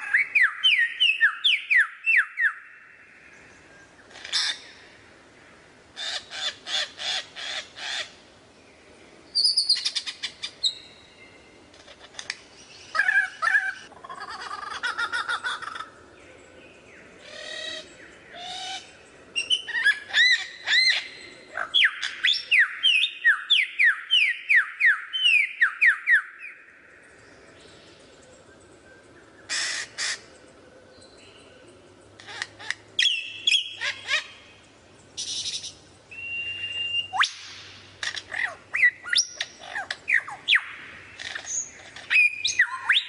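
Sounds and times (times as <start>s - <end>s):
songbird singing: 0.0s - 43.0s.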